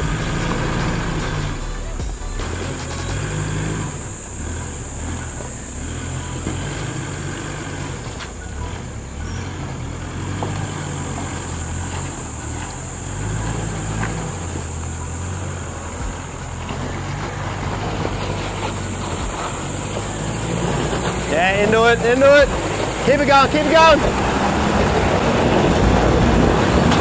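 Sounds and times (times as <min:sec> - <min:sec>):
off-road engine revving: 0:00.0 - 0:27.0.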